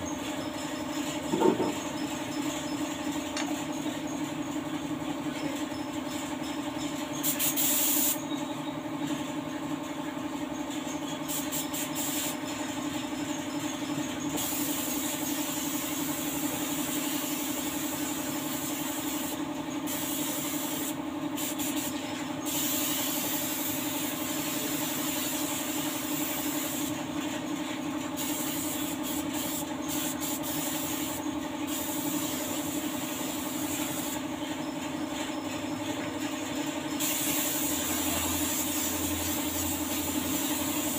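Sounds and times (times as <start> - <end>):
steady machine hum: 0.0 - 7.3, 8.2 - 40.9
paint spray gun hissing: 7.2 - 8.2, 11.3 - 12.5, 14.4 - 27.0, 28.2 - 34.3, 37.0 - 40.9.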